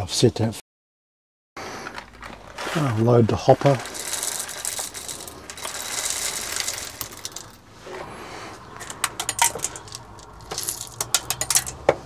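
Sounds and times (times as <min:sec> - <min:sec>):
coffee beans pouring rattle: 0:02.5 - 0:07.7, 0:08.7 - 0:11.8
beans clicking and tapping: 0:03.6 - 0:07.7, 0:08.6 - 0:12.0.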